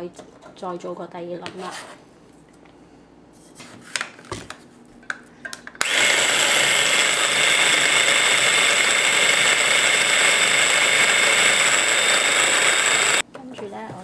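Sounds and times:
electric food chopper whining: 5.8 - 13.2.

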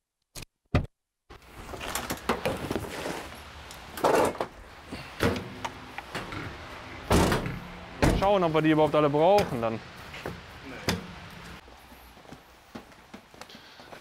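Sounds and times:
knocks and clatter of parts: 3.9 - 4.6.

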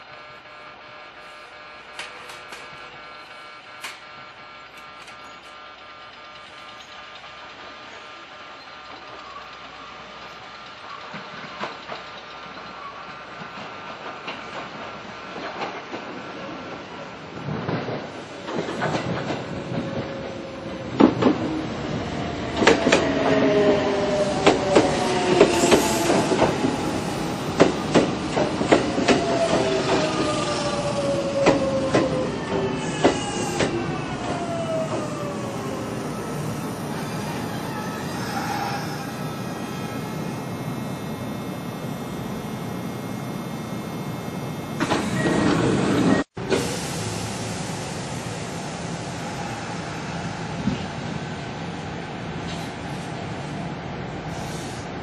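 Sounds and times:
train wheel clicks over rail joints: 1.9 - 2.9, 4.7 - 7.8, 8.8 - 16.1, 27.5 - 30.2
train whining tones falling in pitch: 22.6 - 47.0.

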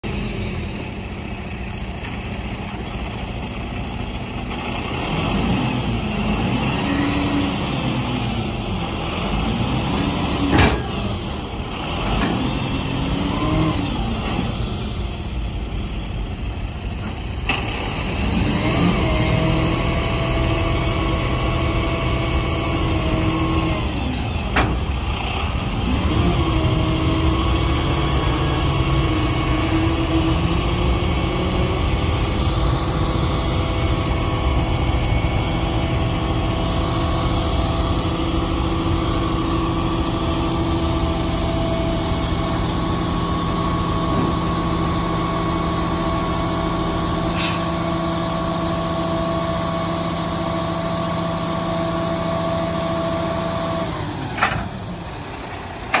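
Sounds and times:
diesel truck engine running: 0.0 - 56.0
hydraulic hoist whine: 17.0 - 48.0.

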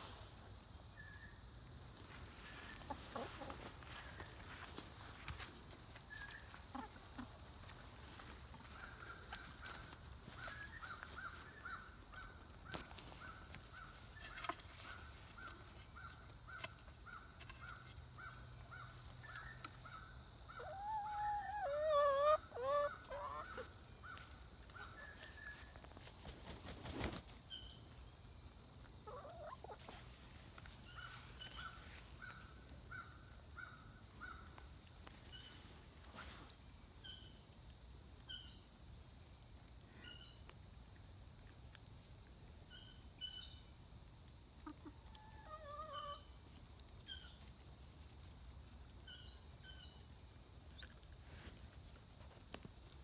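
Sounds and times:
hens calling: 2.1 - 25.8, 29.0 - 33.1, 44.6 - 46.4.

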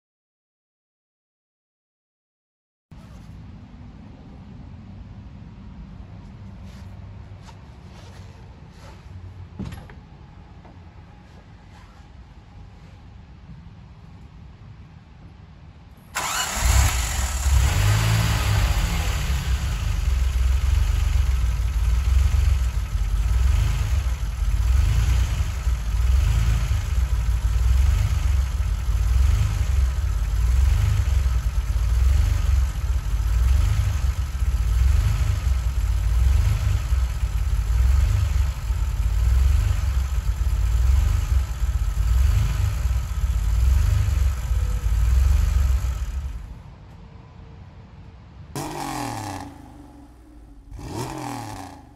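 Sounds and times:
car engine starting and idling: 16.0 - 46.7, 48.6 - 51.9.

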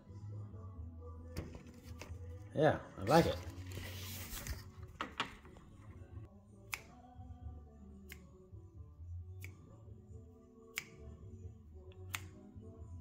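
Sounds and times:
faint music from radio: 0.0 - 13.0.

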